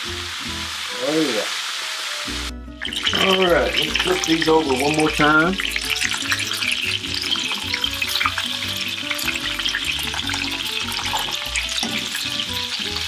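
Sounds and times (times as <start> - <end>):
steaks sizzling in hot oil: 0.0 - 13.0
tongs turning steaks: 2.9 - 13.0.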